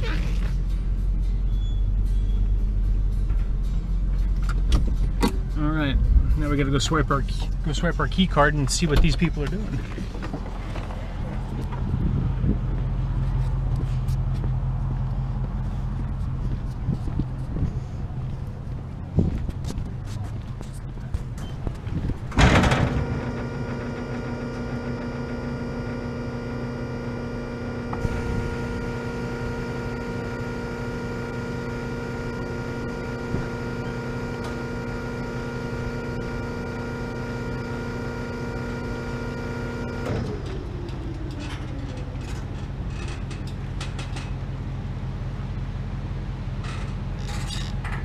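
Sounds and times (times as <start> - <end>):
low rumble: 0.0 - 24.2
bollard motor whining: 21.3 - 43.3.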